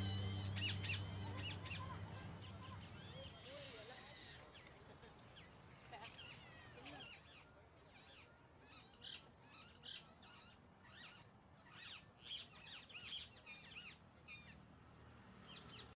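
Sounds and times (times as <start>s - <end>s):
parakeet chicks chirping: 0.0s - 4.4s.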